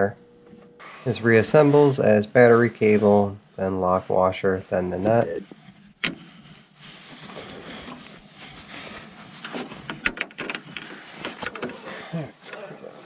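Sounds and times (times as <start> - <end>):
metal clicks and scraping: 9.4 - 11.8.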